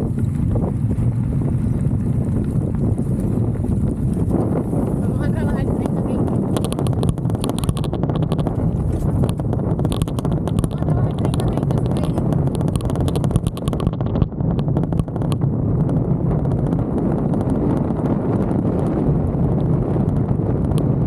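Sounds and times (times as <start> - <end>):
low rumble of bike riding: 0.0 - 21.0
camera rattling in loose mount: 6.3 - 15.4.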